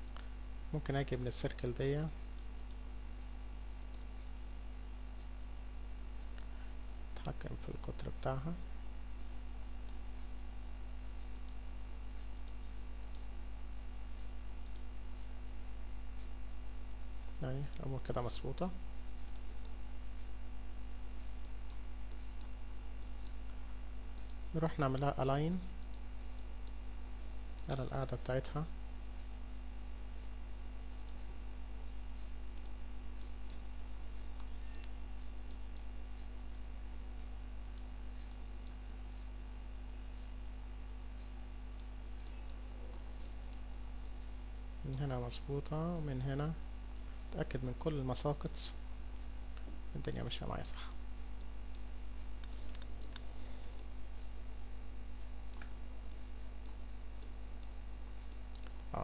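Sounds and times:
electrical mains hum: 0:00.0 - 0:59.0
faint clicks: 0:51.4 - 0:53.9.

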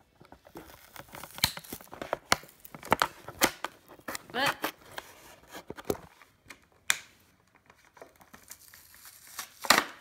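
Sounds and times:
plastic and cardboard crinkling: 0:00.0 - 0:06.5, 0:07.3 - 0:10.0
packaging ripping: 0:00.5 - 0:04.8, 0:08.3 - 0:10.0.

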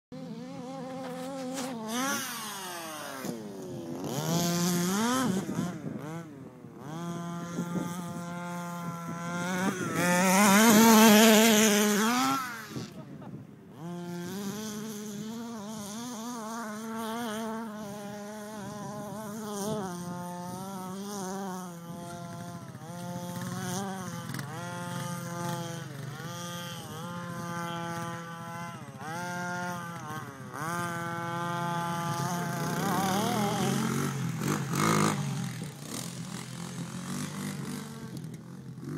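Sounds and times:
small two-stroke engine revving: 0:00.2 - 0:38.9.

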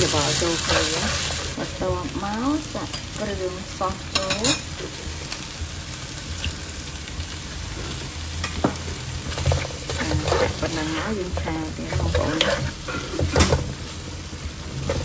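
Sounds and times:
seafood sizzling in a pan: 0:00.0 - 0:15.0
spatula scraping a pan: 0:09.3 - 0:13.7.

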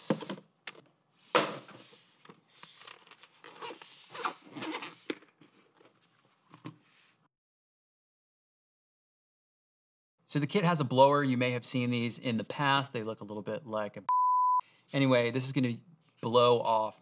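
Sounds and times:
zipper being pulled open: 0:02.6 - 0:06.0.

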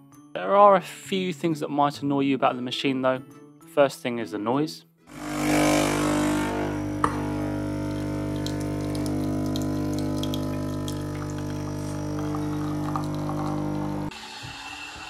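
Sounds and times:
coffee machine droning buzz: 0:05.1 - 0:14.6.

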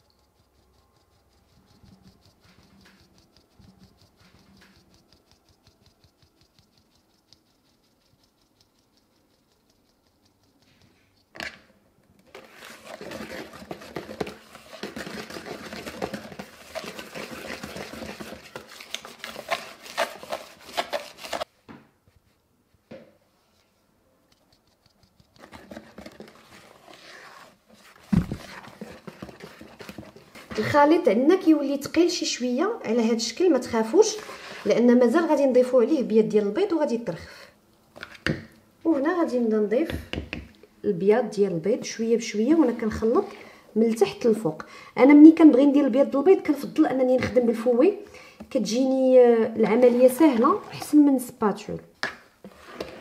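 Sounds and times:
whisk rattling against bowl: 0:00.0 - 0:10.9.

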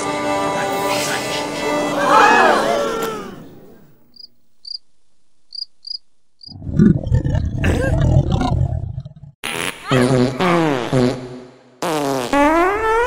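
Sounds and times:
cartoon crickets chirping: 0:03.7 - 0:04.9, 0:05.5 - 0:06.6
cartoon stomach rumbling: 0:06.4 - 0:09.4.

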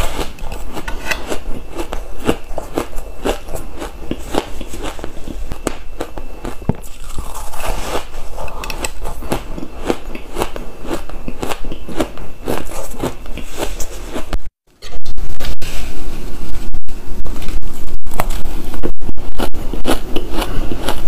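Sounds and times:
ice being chewed: 0:00.0 - 0:14.4, 0:19.2 - 0:21.0.

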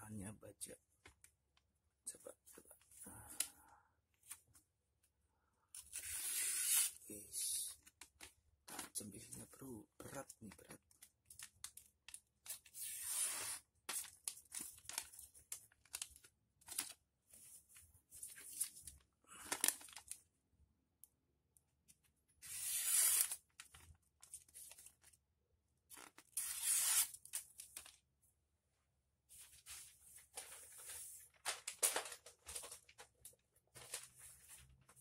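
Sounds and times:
paper rustling: 0:12.4 - 0:20.2, 0:22.7 - 0:25.2, 0:29.3 - 0:35.0
knife slicing through paper: 0:22.4 - 0:23.4, 0:26.4 - 0:27.2.

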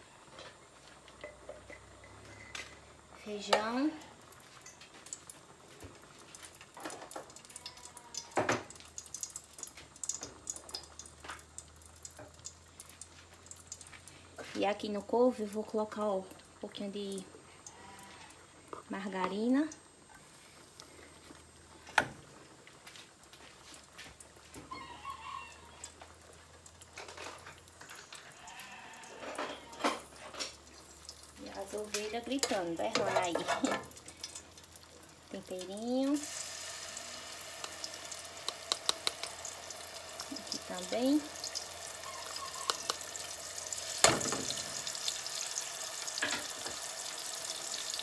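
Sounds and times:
sheep bleating: 0:28.3 - 0:29.8
kitchen clicks and taps: 0:38.4 - 0:39.4, 0:42.6 - 0:43.0.

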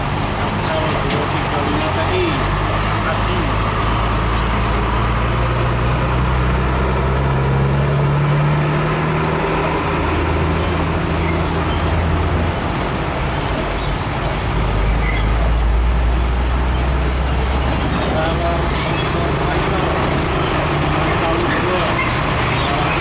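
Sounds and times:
diesel truck engine running: 0:00.0 - 0:23.0.

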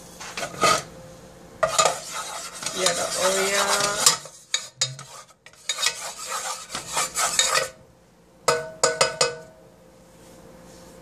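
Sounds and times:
wooden spoon scraping saucepan: 0:00.2 - 0:00.9, 0:01.6 - 0:07.8
spoon tapping metal pan: 0:08.5 - 0:09.6.

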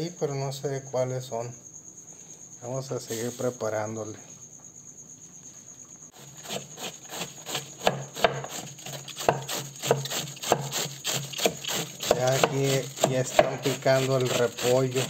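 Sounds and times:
knife chopping cabbage: 0:06.2 - 0:15.0.

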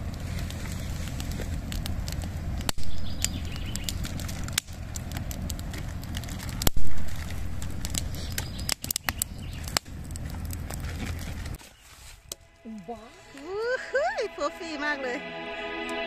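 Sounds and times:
campfire crackling and popping: 0:00.0 - 0:13.7
low fire rumble: 0:00.0 - 0:15.3.

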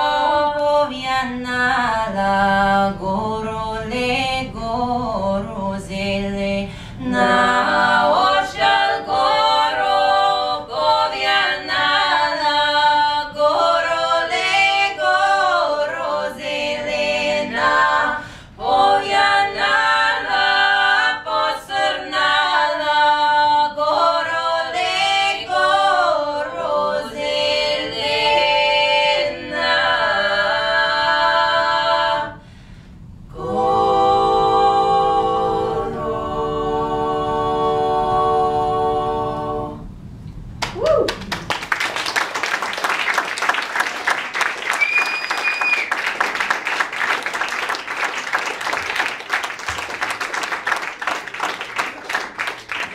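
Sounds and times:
women singing in harmony: 0:00.0 - 0:32.4, 0:33.3 - 0:39.9.

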